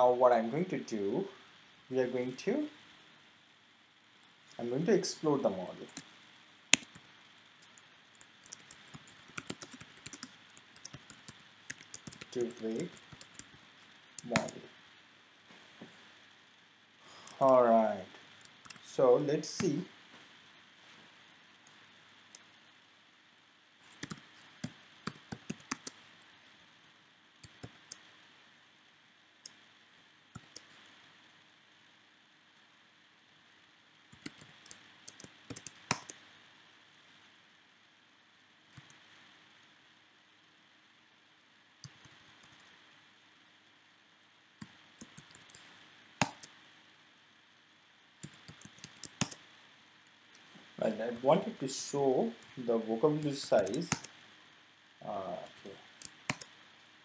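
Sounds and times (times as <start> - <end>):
computer keyboard typing: 6.7 - 13.6, 14.2 - 14.6, 18.4 - 18.8, 23.9 - 26.0, 27.4 - 28.0, 30.4 - 30.7, 34.2 - 36.2, 41.8 - 42.7, 44.6 - 46.6, 48.2 - 49.4, 53.2 - 54.1, 56.0 - 56.5.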